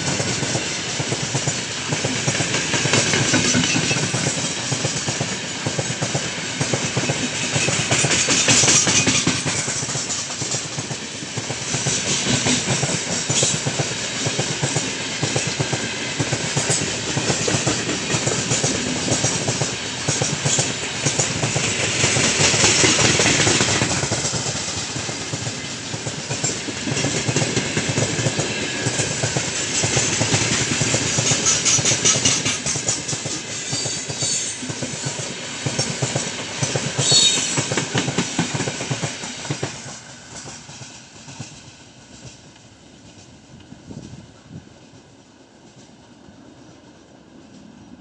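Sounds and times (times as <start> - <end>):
freight train wheels rumbling: 0.0 - 48.0
high squeal: 37.0 - 37.6.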